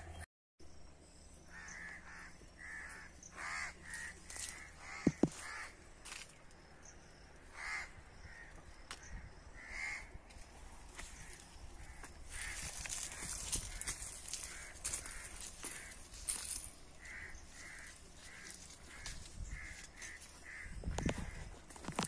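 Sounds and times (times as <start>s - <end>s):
crows cawing: 1.5s - 6.2s, 7.5s - 22.0s.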